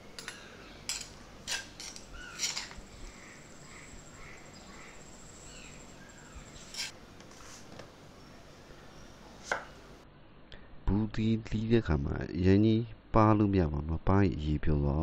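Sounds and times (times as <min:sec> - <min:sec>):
metal spoon scraping metal strainer: 0:00.9 - 0:02.8, 0:06.6 - 0:07.0.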